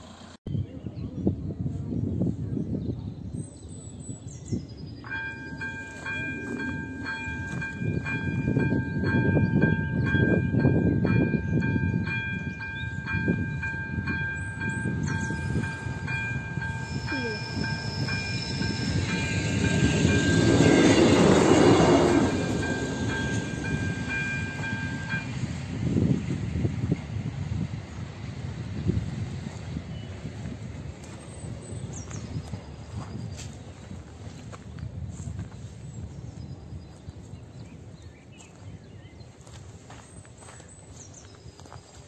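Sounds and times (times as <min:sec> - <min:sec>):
level crossing warning bell: 0:05.1 - 0:26.3.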